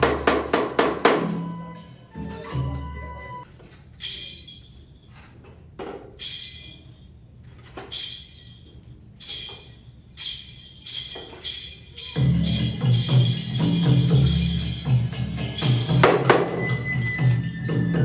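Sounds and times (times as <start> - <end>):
sharp metallic jingles: 3.4 - 17.5.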